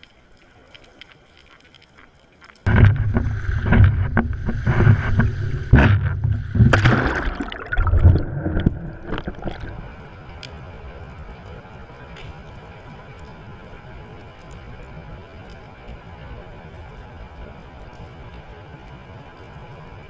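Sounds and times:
waves sloshing and splashing: 2.6s - 11.6s
water slapping a wall: 2.7s - 9.8s.

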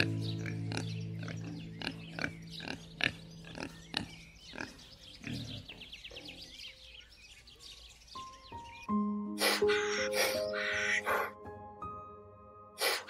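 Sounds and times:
wild boar grunting: 0.0s - 6.6s, 9.4s - 11.4s
faint bird chirps: 0.0s - 11.3s.

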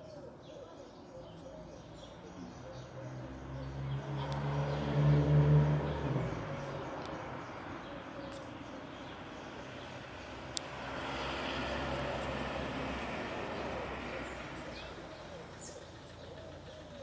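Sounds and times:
vehicle driving past: 3.0s - 8.0s, 9.0s - 17.0s.

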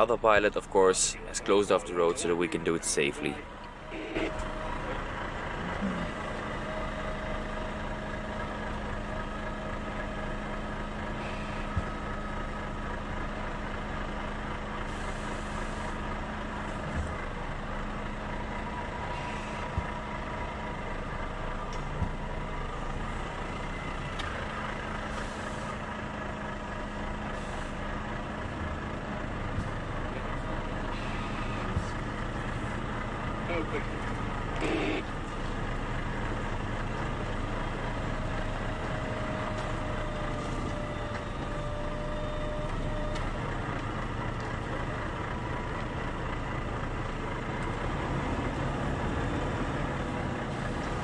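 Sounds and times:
heavy truck engine running: 0.0s - 51.0s.

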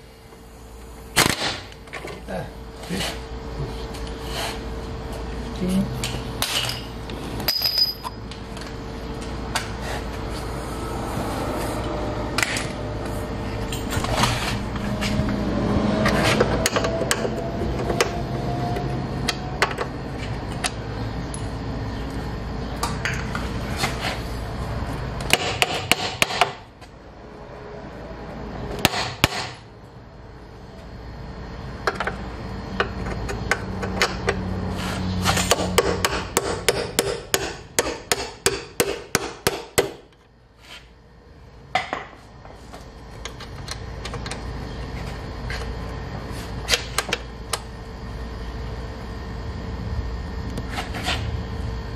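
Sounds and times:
low shop hum: 0.0s - 51.9s
metal tool clinks: 7.5s - 8.2s.

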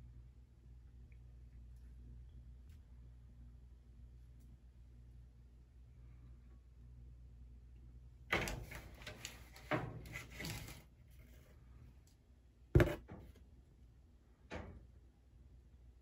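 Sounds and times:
plastic and cardboard scraping rattling: 8.6s - 10.8s, 12.8s - 13.1s
knocks: 12.8s - 13.1s.

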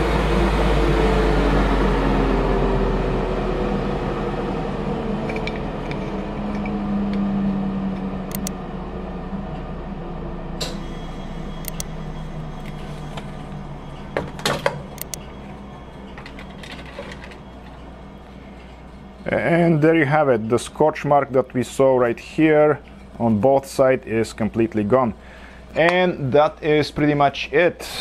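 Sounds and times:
machine spinning down: 0.0s - 21.8s.

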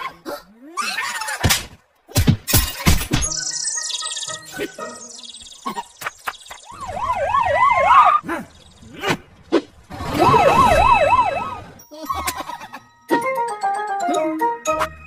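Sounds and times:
cartoon police siren yelping: 6.6s - 8.2s, 10.1s - 11.7s.

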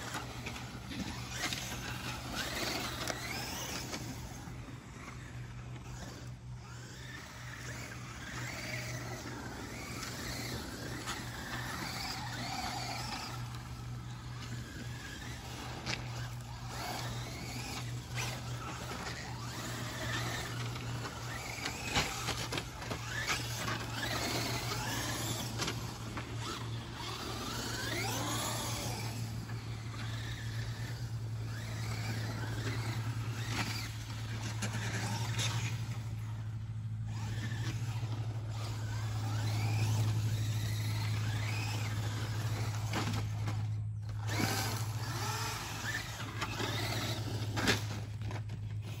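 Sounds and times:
electric motors whining: 0.0s - 49.0s
steady low hum: 0.0s - 49.0s.

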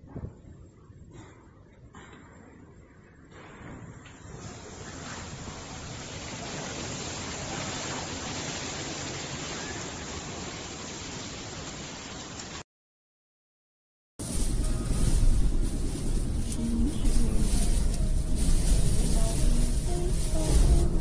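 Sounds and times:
wind and rain rushing: 4.3s - 12.6s, 14.2s - 21.0s.

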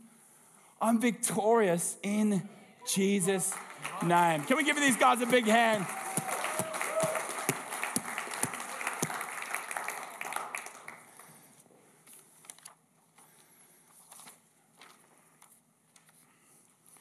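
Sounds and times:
audience applause: 3.0s - 11.4s
papers rustling: 13.9s - 16.2s.

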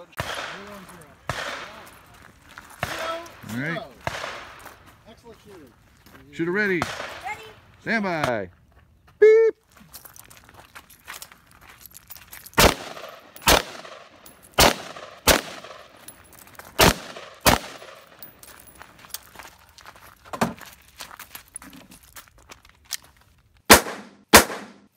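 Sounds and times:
pistol shots: 0.2s - 2.0s, 4.0s - 4.6s, 6.8s - 7.2s, 12.6s - 16.0s, 16.8s - 18.3s, 23.7s - 24.8s.

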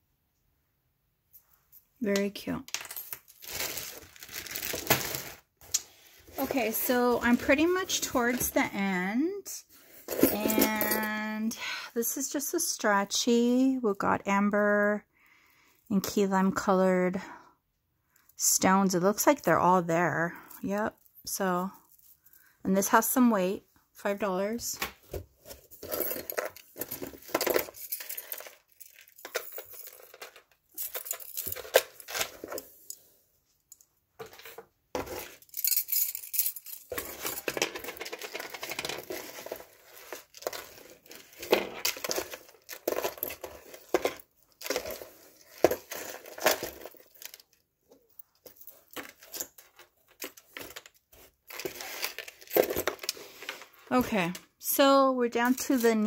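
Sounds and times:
packaging crinkling: 3.1s - 5.5s
metal bracelets clinking: 10.0s - 11.3s, 25.8s - 33.0s, 35.2s - 53.2s.

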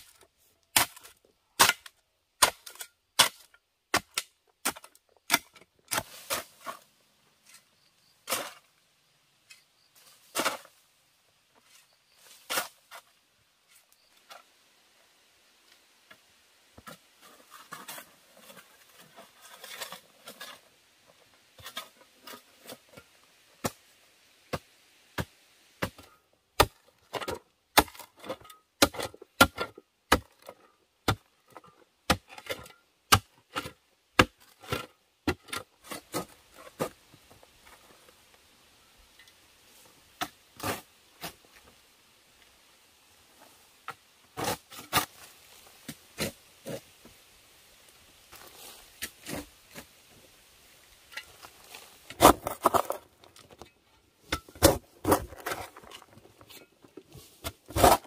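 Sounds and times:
hoe chopping stony earth: 0.0s - 6.8s, 24.5s - 37.0s, 52.1s - 53.0s, 54.2s - 56.0s, 57.4s - 58.0s
soil and stones scraping: 0.0s - 58.0s.

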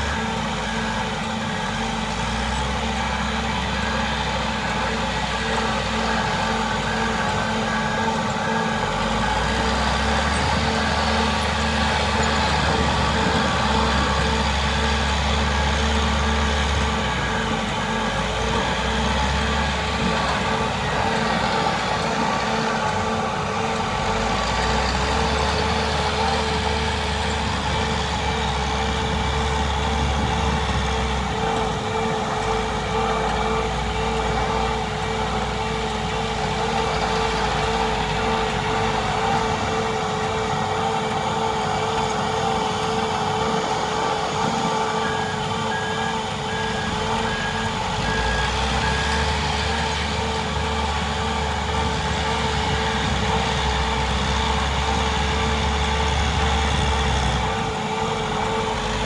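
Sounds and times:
heavy equipment working: 0.0s - 59.0s
backup alarm beeping: 44.0s - 49.4s.

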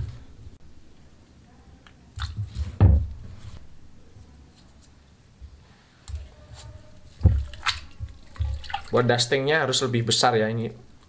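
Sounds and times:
soft rustles: 2.2s - 8.9s.

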